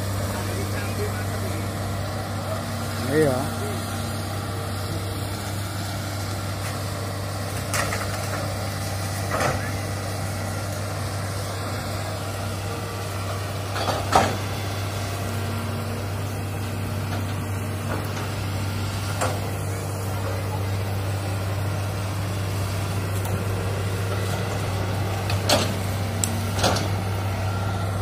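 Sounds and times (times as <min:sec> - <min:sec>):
excavator diesel engine humming: 0:00.0 - 0:28.0
knocks and clanks: 0:26.5 - 0:27.0.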